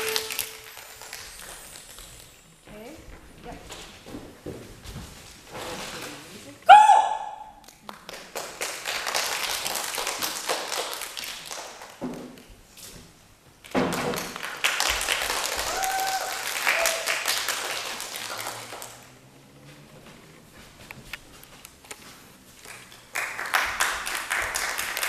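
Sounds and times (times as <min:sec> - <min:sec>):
crowd clapping: 0:00.0 - 0:01.6, 0:07.8 - 0:12.0, 0:14.1 - 0:19.3, 0:22.6 - 0:25.0
brief shouts: 0:06.7 - 0:07.6, 0:15.7 - 0:17.1.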